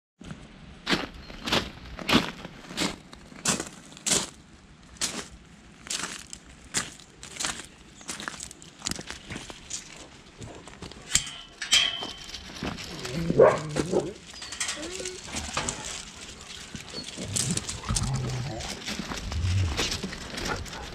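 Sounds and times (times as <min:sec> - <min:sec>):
footsteps crunching on gravel: 0:00.9 - 0:04.4, 0:05.0 - 0:11.1, 0:12.0 - 0:20.9
huskies whining: 0:12.8 - 0:20.9.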